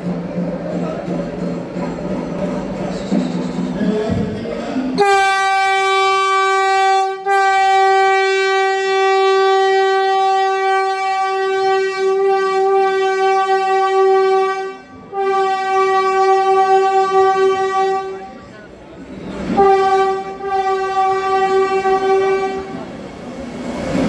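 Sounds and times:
train horn blast: 0:04.9 - 0:18.5, 0:19.5 - 0:22.9.

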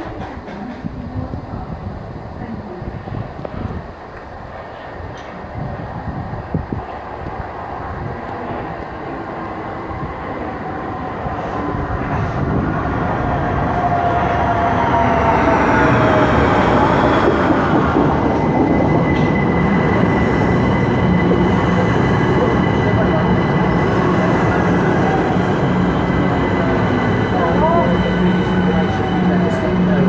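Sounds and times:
wheels rumbling and squealing on rail: 0:07.8 - 0:30.0
steady high tone: 0:08.4 - 0:30.0.

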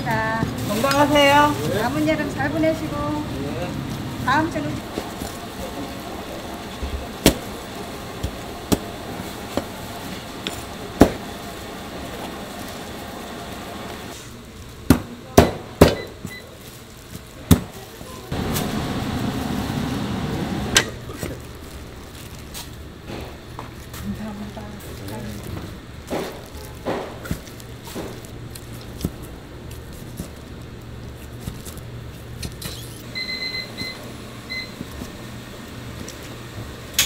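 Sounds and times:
loud steady noise: 0:17.6 - 0:21.2.

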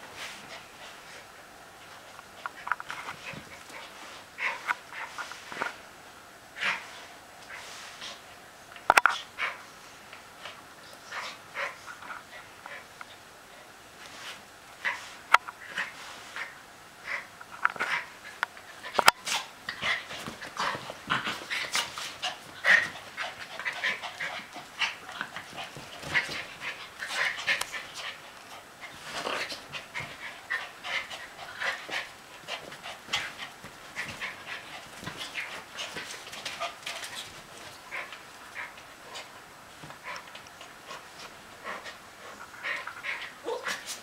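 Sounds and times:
dogs scuffling: 0:01.8 - 0:05.8, 0:17.5 - 0:44.0.

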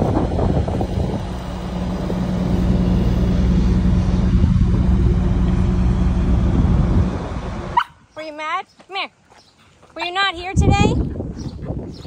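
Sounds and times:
vehicle engine running steadily: 0:00.0 - 0:08.0
wind gusting on microphone: 0:00.0 - 0:08.2, 0:10.2 - 0:12.0.

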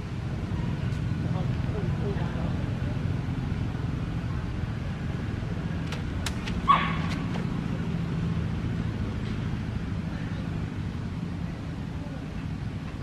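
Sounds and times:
dog barking: 0:06.7 - 0:07.2.

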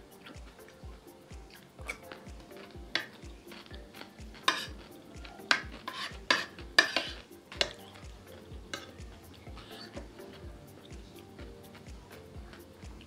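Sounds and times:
soft background music: 0:00.0 - 0:13.0
spoon scraping a plate: 0:01.9 - 0:10.4.

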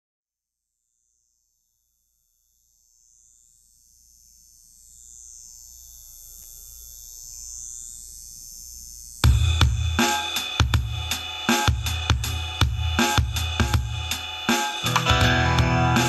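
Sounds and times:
high-pitched ringing hiss: 0:02.3 - 0:14.9.

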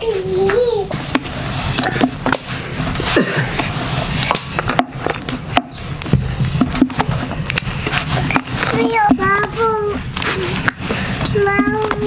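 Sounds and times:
rolling pin knocking on wooden board: 0:04.3 - 0:07.5.

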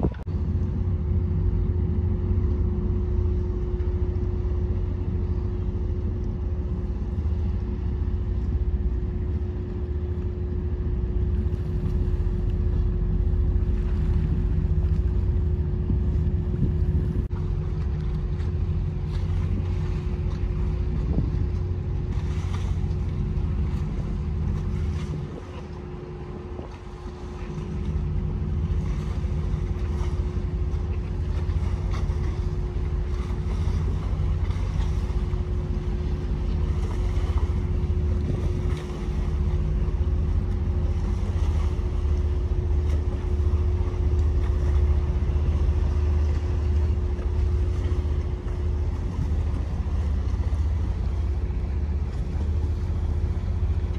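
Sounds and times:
constant hum: 0:00.0 - 0:53.9
low boat engine rumble: 0:00.0 - 0:53.9
wind on microphone: 0:00.0 - 0:53.9.

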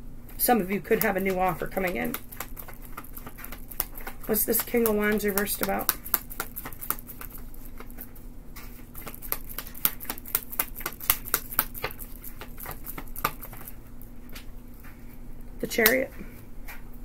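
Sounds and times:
cards being shuffled: 0:01.0 - 0:13.8.

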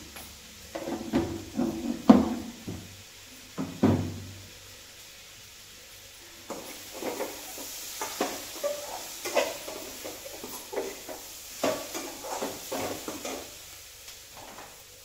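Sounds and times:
vegetables sizzling: 0:00.0 - 0:15.0
metal spatula scraping a pan: 0:06.9 - 0:13.6.

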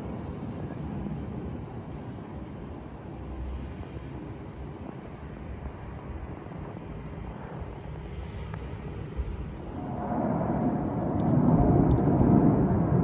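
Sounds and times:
faint steady whine: 0:00.0 - 0:13.0
jets flying over: 0:04.8 - 0:13.0.

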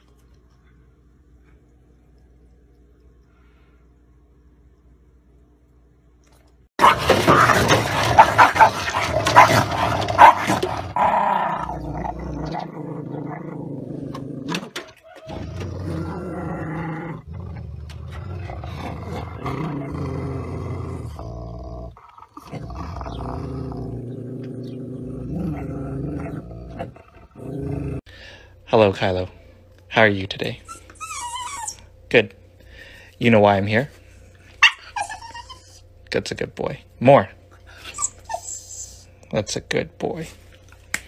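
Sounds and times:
dog growling: 0:06.8 - 0:28.1
dogs snarling and barking: 0:06.8 - 0:28.1, 0:34.5 - 0:36.0.

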